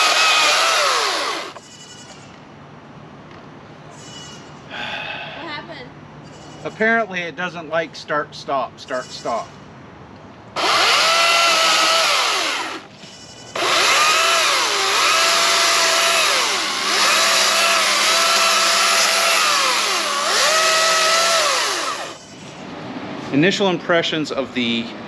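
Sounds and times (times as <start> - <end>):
electric chainsaw cutting limbs: 0.0 - 1.6, 10.6 - 12.9, 13.6 - 22.2.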